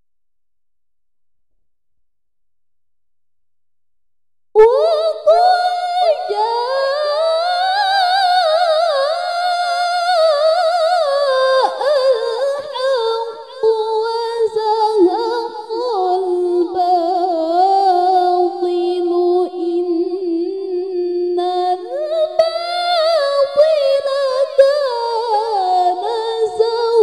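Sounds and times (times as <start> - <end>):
woman reciting melodically: 4.6 - 27.0.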